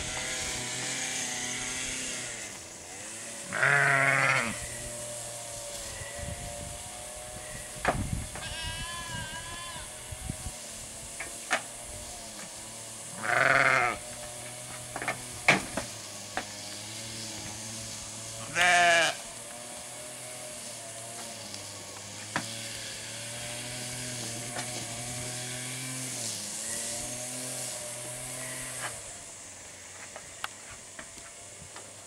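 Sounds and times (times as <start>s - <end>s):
sheep bleating: 2.9s - 4.6s, 8.4s - 10.1s, 13.1s - 14.0s, 18.4s - 19.3s.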